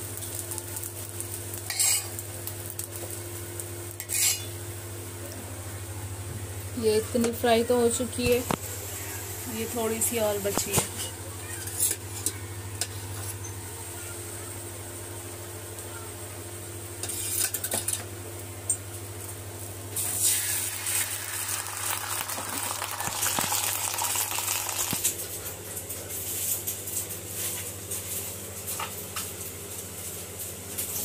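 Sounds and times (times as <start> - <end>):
batter sizzling in oil: 0.0 - 4.8, 17.0 - 18.1, 18.7 - 31.0.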